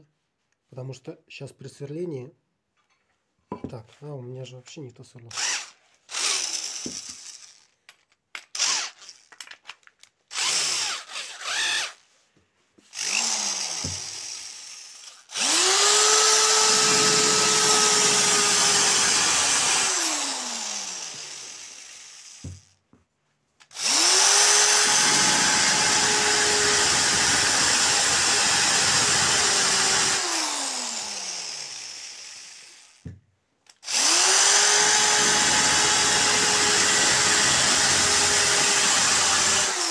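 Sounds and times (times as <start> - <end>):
drill clicks: 5.3 - 12.0, 12.9 - 22.8, 23.6 - 33.0
drill whining and grinding glass: 5.4 - 7.8, 8.6 - 9.4, 10.3 - 12.0, 12.8 - 22.7, 23.7 - 33.0, 33.8 - 39.9.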